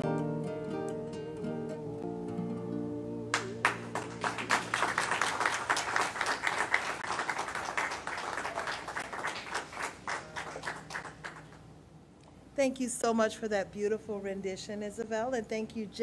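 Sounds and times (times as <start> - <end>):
congregation applauding: 3.3 - 11.6.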